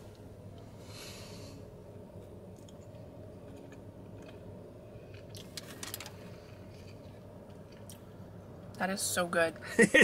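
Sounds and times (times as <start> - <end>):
low steady car cabin hum: 0.0 - 10.0
quiet chewing: 2.2 - 8.1.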